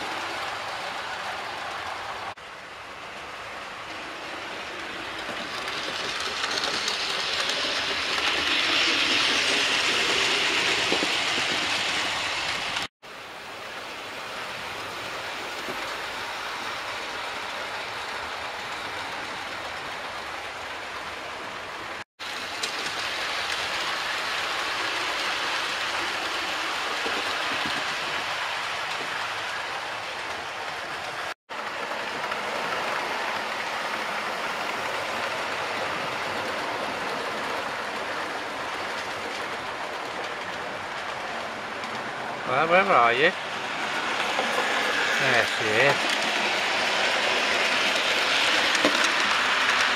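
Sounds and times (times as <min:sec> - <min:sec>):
model train wheels on rails: 0:00.0 - 0:49.9.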